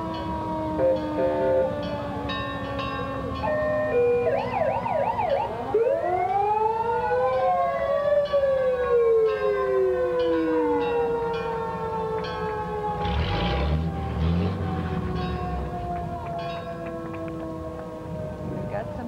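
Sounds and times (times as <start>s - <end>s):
siren wailing: 0.0s - 19.0s
siren yelp: 0.0s - 19.0s
steady siren tones: 0.0s - 19.0s.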